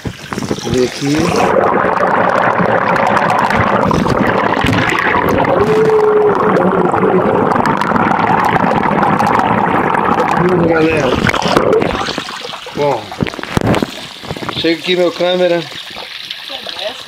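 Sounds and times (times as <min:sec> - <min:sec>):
muffled shower water rushing: 0:00.0 - 0:17.0.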